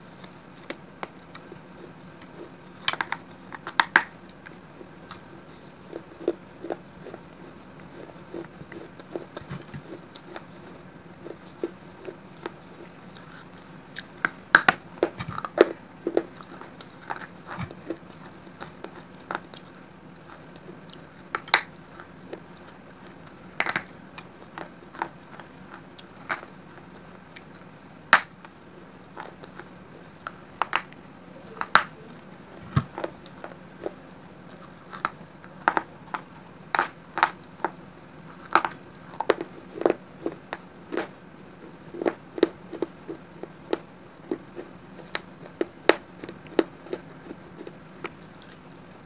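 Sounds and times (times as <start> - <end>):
clay cracking between teeth: 0.1 - 5.3, 5.9 - 48.7.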